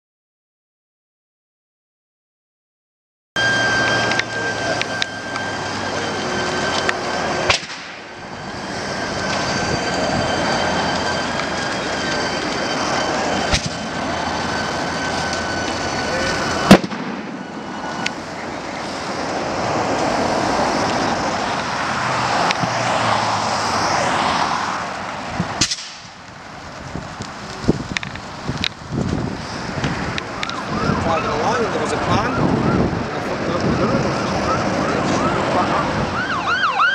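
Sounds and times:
fire roaring: 0:03.4 - 0:36.9
explosions: 0:07.3 - 0:08.1, 0:13.4 - 0:21.7.

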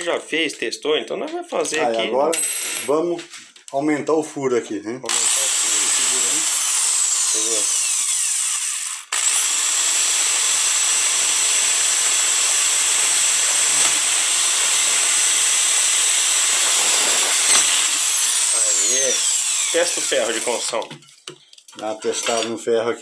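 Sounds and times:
electric drill motor whine: 0:05.1 - 0:20.6.

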